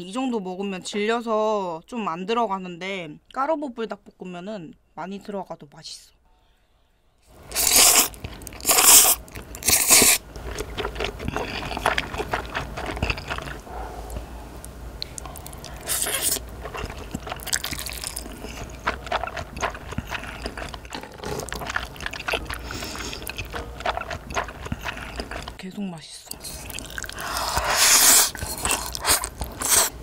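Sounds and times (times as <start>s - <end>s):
loud noodle slurping: 7.4s - 13.6s, 15.2s - 25.6s, 26.4s - 30.0s
wet chewing: 7.4s - 25.6s, 26.3s - 30.0s.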